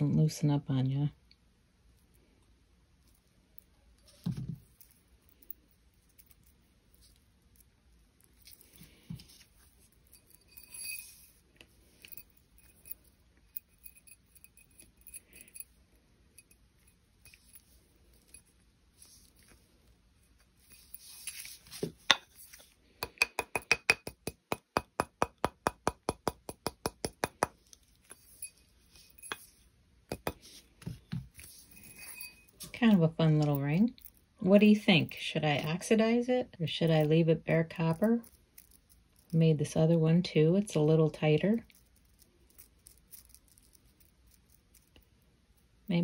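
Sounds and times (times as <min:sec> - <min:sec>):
metallic clinks of beads: 0:04.0 - 0:30.6, 0:31.3 - 0:32.8, 0:36.8 - 0:39.4, 0:41.5 - 0:45.0.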